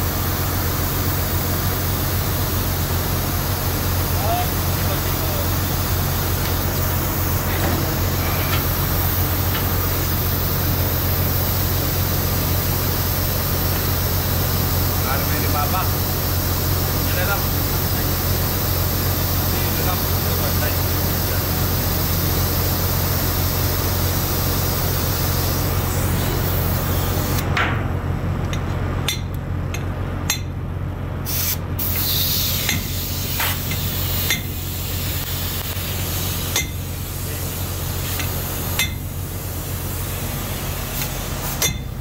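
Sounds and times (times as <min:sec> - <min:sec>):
low machinery hum: 0:00.0 - 0:42.0
hammer striking steel pipe: 0:29.1 - 0:30.6, 0:34.3 - 0:34.5, 0:36.5 - 0:36.8, 0:38.2 - 0:39.0, 0:41.6 - 0:41.9.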